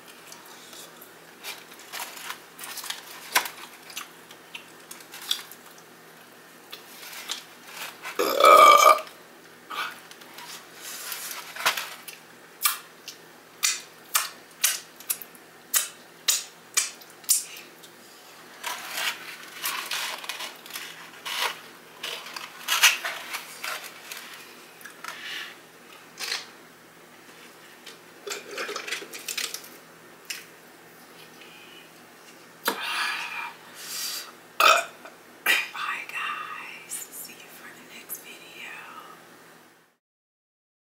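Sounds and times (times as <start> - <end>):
crunching fried chicken: 1.4 - 5.8
loud burp: 8.2 - 9.1, 34.6 - 35.0.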